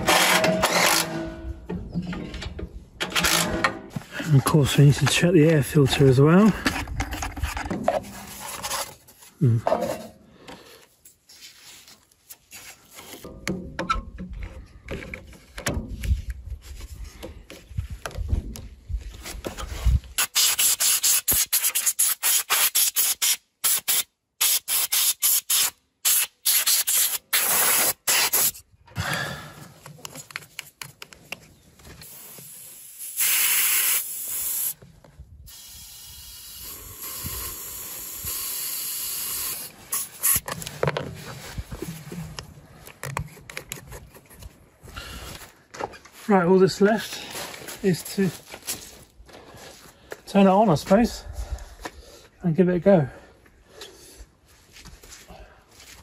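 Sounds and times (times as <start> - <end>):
compressed air hissing: 32.0 - 34.8, 35.5 - 40.4
handling knocks and rustling: 40.4 - 44.8.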